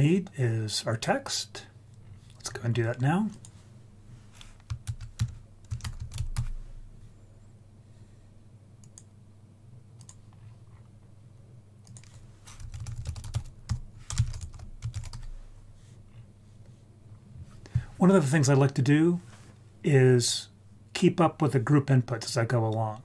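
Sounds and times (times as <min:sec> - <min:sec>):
computer keyboard typing: 0:04.6 - 0:06.6, 0:10.0 - 0:10.2, 0:11.8 - 0:15.3.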